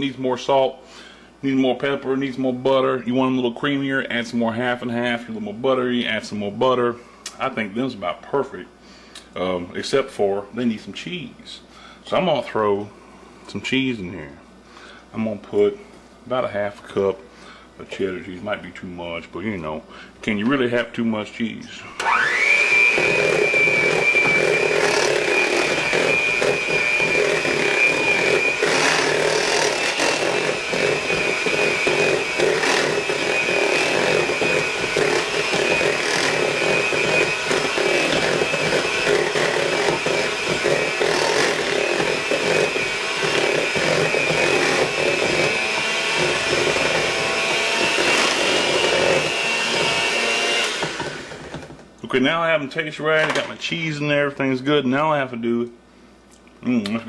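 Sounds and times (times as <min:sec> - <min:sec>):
electric hand mixer whining: 0:21.9 - 0:51.8
mashed potatoes churning: 0:22.2 - 0:51.6.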